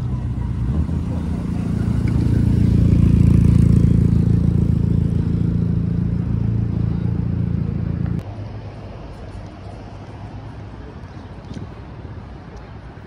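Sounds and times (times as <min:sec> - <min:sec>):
car engine running at low revs: 0:00.0 - 0:08.2.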